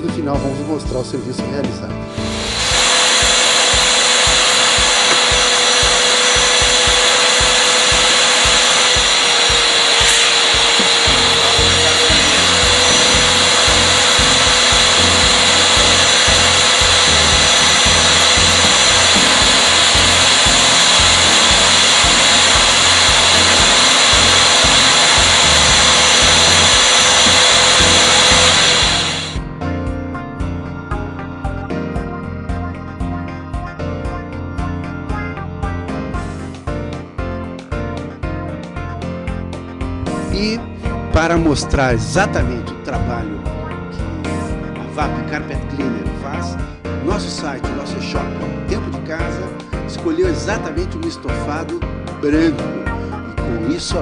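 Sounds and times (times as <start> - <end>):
carpet cleaner vacuum whine: 2.2 - 29.5.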